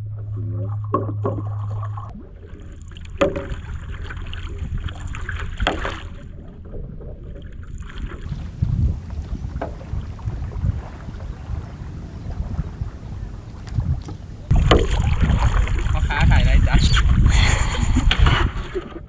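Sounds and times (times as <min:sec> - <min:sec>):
low hum: 0:00.0 - 0:04.2, 0:08.3 - 0:15.8
water sloshing and lapping: 0:00.0 - 0:19.0
sharp splashes: 0:08.3 - 0:16.3.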